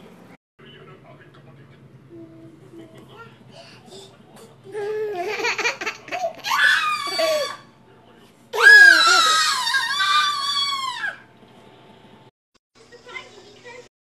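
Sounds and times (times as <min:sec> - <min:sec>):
baby laughing: 0:04.8 - 0:07.4
baby squealing: 0:06.4 - 0:07.6, 0:08.6 - 0:11.2.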